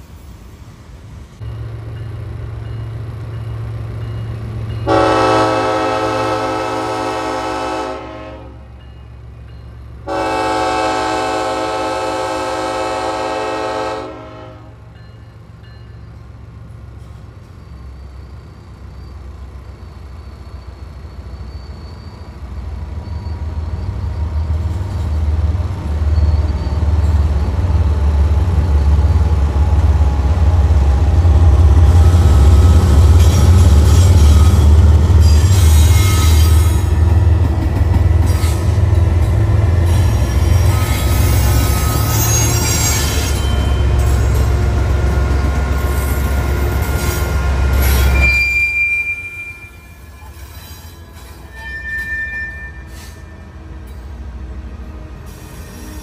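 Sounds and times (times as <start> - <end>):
train wheels squealing and rattling: 15.0 - 54.3, 54.9 - 56.0.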